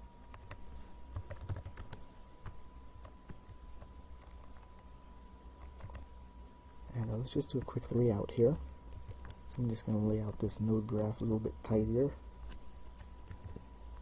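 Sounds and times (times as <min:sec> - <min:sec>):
faint steady whine: 0:00.0 - 0:14.0
keyboard typing: 0:00.3 - 0:04.9, 0:05.6 - 0:06.1, 0:08.9 - 0:11.4, 0:12.9 - 0:13.6.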